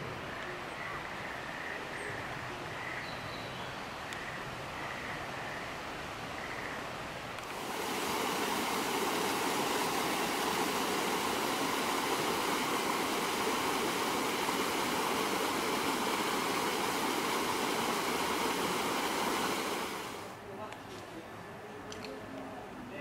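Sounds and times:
stream rushing over rocks: 7.0s - 20.4s.

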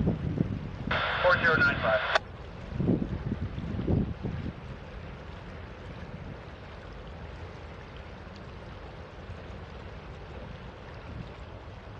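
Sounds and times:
fast-flowing river rushing: 0.9s - 2.2s.

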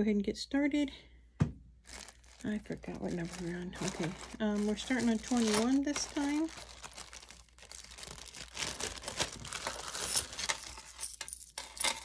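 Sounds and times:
plastic bag crinkling: 1.9s - 11.4s.

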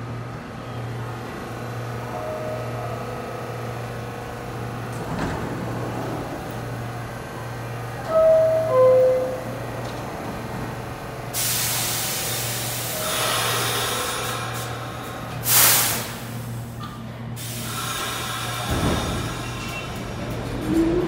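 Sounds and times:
compressed air hissing from train: 11.3s - 16.8s, 17.4s - 20.0s.

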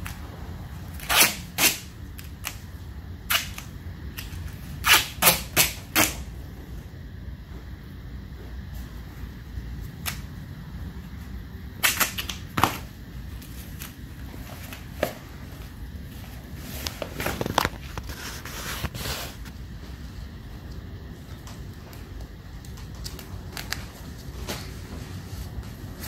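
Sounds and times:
duct tape ripping: 0.9s - 6.3s, 11.8s - 14.0s.

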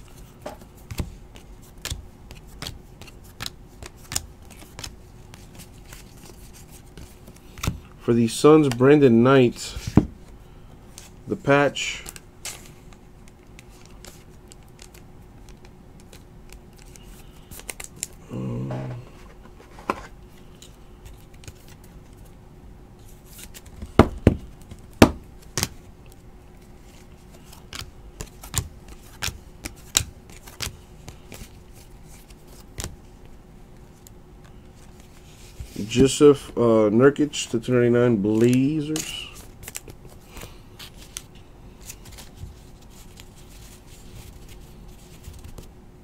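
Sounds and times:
cards clicking and snapping: 0.9s - 7.9s, 12.0s - 18.2s, 20.6s - 21.8s, 25.4s - 26.2s, 26.9s - 33.0s.

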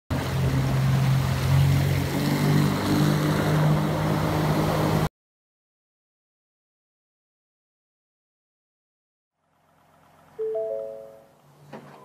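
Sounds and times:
water rushing along hull: 0.1s - 5.1s
motorboat engine running: 9.4s - 12.0s.

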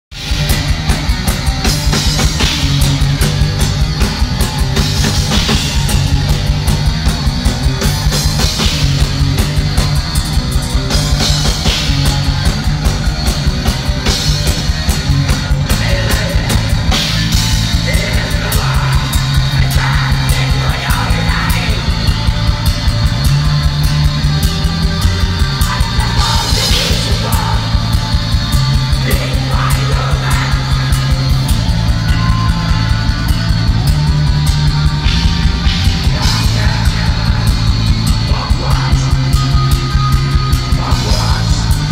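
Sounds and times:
distorted guitar and bass riffs: 0.0s - 41.9s
fast drumming: 0.1s - 41.9s
harsh shouted vocals: 15.5s - 22.2s, 25.5s - 33.1s, 35.1s - 39.6s, 40.6s - 41.9s.

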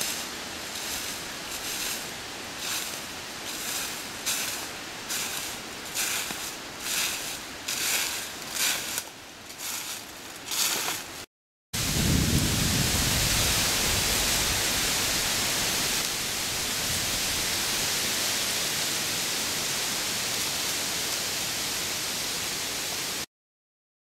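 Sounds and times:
footsteps crunching through dry leaves: 0.0s - 11.3s.

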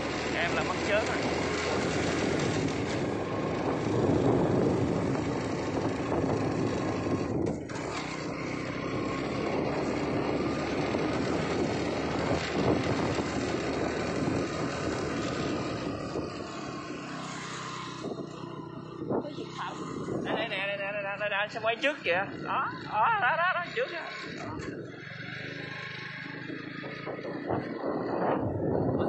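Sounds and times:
road noise: 0.0s - 29.0s
rushing wind: 0.0s - 29.0s
motorbike engine under load: 7.4s - 8.5s.

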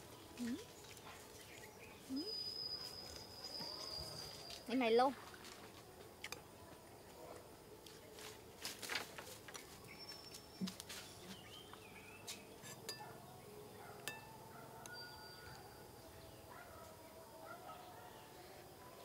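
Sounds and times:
spoon clinking on ceramic bowl: 12.8s - 13.1s, 14.0s - 15.5s.

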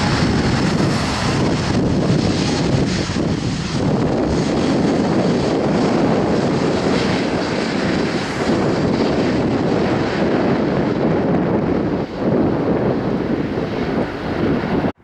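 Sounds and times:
jet engines roaring: 0.0s - 15.0s
wind buffeting microphone: 0.0s - 15.0s.

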